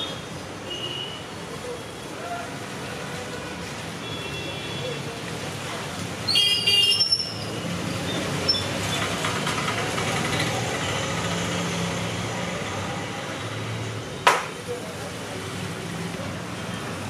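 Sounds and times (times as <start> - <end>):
vehicle engines running: 7.5 - 17.0.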